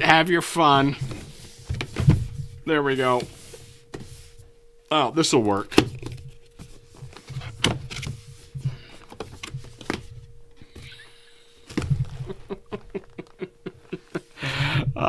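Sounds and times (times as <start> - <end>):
cardboard scraping and rustling: 0.7 - 4.5, 5.6 - 10.9, 11.6 - 13.2.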